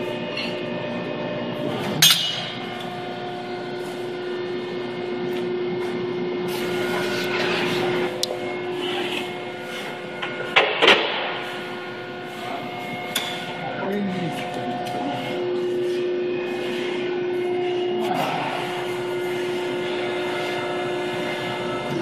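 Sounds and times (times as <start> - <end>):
hydraulic press humming: 0.0 - 22.0
sharp metal clank: 2.0 - 2.5.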